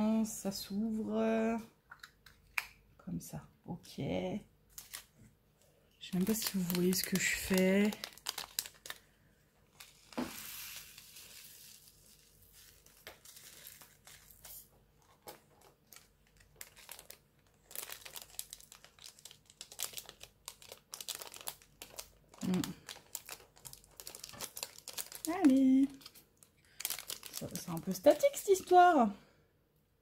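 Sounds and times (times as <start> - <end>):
plastic packets crinkling: 4.7 - 5.2, 6.0 - 28.9.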